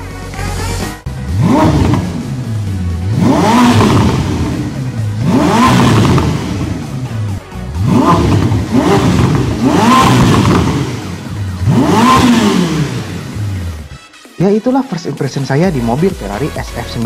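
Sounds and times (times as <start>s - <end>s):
car engine revving: 0.3s - 14.0s.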